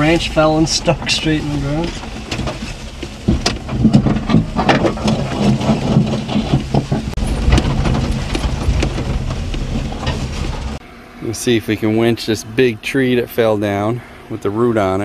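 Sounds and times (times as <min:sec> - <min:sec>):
knocks and rattles from bumps: 0:00.0 - 0:10.8
truck engine running: 0:00.0 - 0:15.0.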